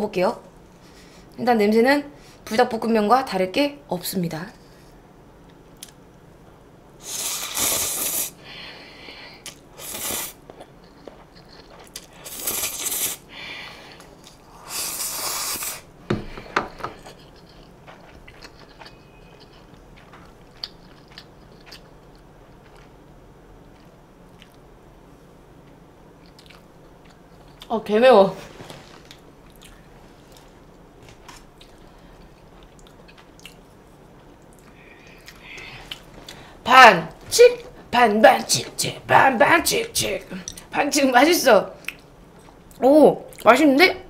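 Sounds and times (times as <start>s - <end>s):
chewing with soft clicks: 5.4s - 6.0s, 17.0s - 23.0s, 23.7s - 24.7s, 25.6s - 27.7s, 29.1s - 30.5s, 31.6s - 36.4s
person slurping noodles: 7.0s - 8.4s, 14.6s - 15.9s.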